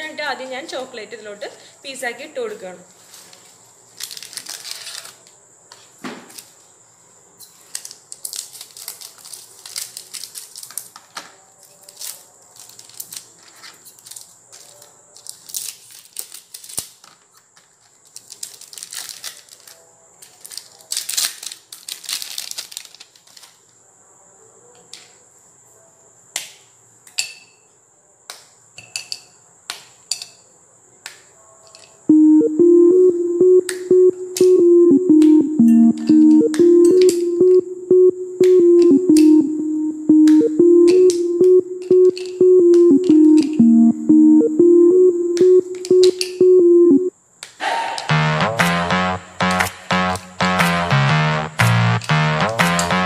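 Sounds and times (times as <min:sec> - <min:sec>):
foil wrapper crinkling: 0:03.9 - 0:05.2, 0:07.8 - 0:11.0, 0:15.2 - 0:17.0, 0:17.8 - 0:19.8, 0:20.4 - 0:23.6
music: 0:32.1 - 0:47.1, 0:48.1 - 0:53.0.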